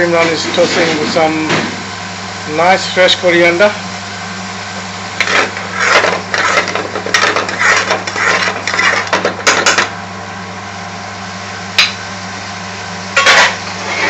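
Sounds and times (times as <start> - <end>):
metal utensil scraping frying pan: 5.2 - 9.8.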